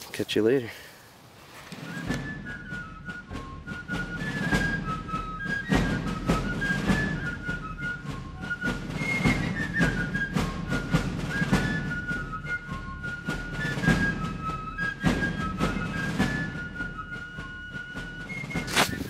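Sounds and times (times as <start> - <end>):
drum beat: 2.0 - 16.9.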